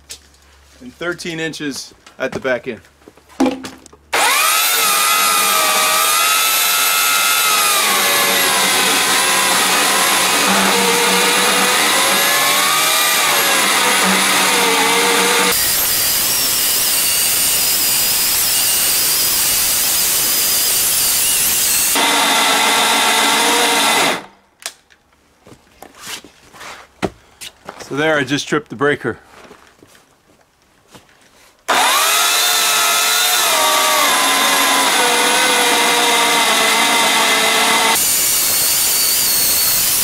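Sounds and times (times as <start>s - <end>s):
electric chainsaw cutting log: 4.1s - 24.3s, 31.7s - 40.0s
saw motor spinning down: 4.1s - 24.3s, 31.7s - 40.0s.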